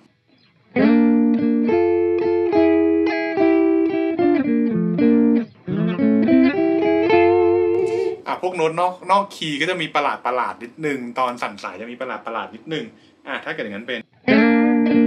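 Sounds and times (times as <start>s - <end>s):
electric guitar harmonized melody: 0.6s - 8.2s, 14.1s - 15.0s.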